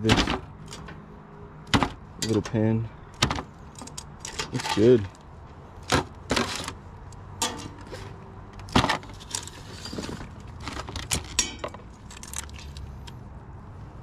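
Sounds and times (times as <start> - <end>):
utensils clinking against a pan: 7.4 - 8.0, 11.3 - 11.8.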